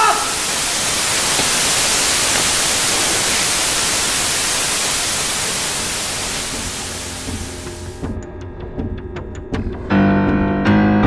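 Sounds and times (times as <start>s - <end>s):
static hiss: 0.0s - 8.1s.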